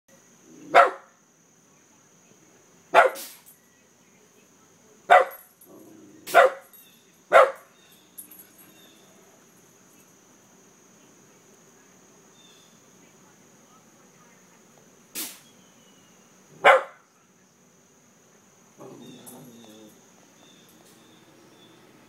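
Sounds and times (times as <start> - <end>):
dog barking: 0.7 - 1.2, 2.9 - 3.3, 5.1 - 5.4, 6.3 - 6.7, 7.3 - 7.7, 16.6 - 17.0.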